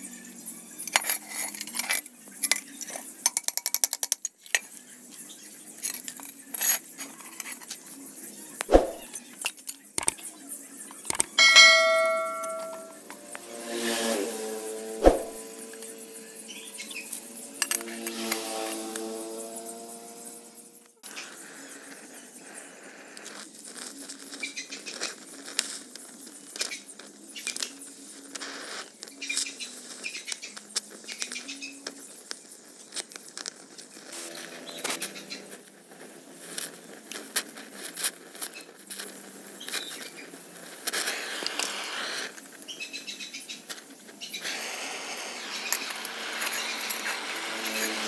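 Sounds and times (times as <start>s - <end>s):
gas torch hissing: 21.0s - 30.2s, 32.2s - 48.0s.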